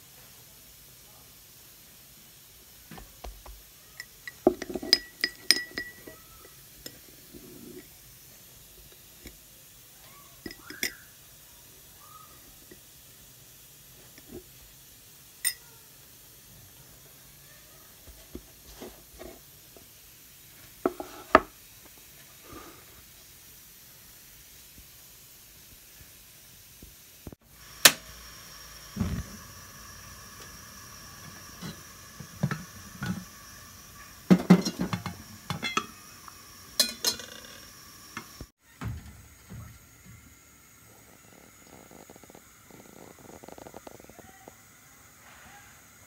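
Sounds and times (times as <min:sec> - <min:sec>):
gas burner hissing: 0:00.0 - 0:46.0
pot thud on burner: 0:31.6 - 0:33.3, 0:34.3 - 0:36.0.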